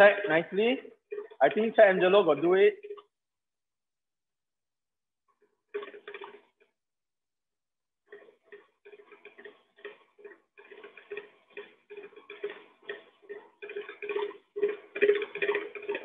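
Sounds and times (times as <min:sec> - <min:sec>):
stand mixer beater ticking: 0:00.0 - 0:03.1, 0:08.0 - 0:16.0.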